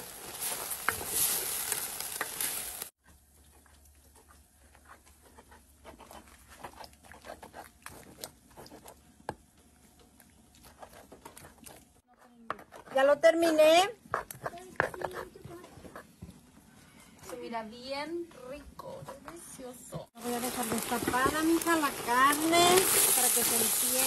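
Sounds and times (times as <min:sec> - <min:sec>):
meat sizzling in a pot: 0:00.0 - 0:03.0, 0:20.2 - 0:24.0.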